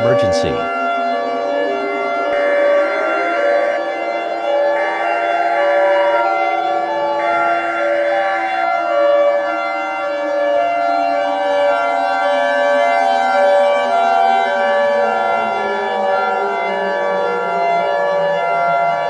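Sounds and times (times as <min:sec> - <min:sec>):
emergency siren chord: 0:00.0 - 0:07.2.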